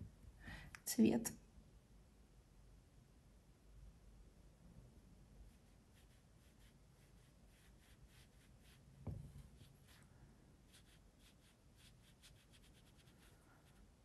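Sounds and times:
paintbrush ticking on paper: 10.7 - 13.8.

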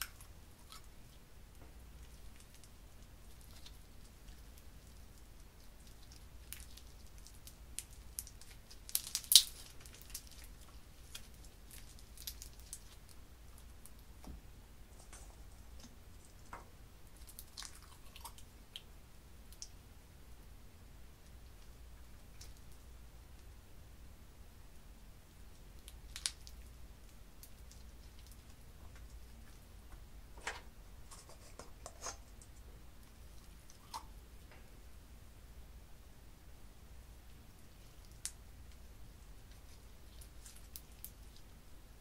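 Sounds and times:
slime crackling and popping: 2.0 - 14.1, 16.4 - 18.9, 25.7 - 29.6, 39.4 - 41.5.

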